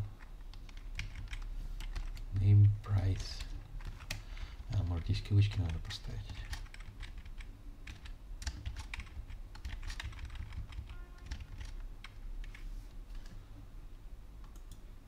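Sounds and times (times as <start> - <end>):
low steady hum: 0.0 - 15.0.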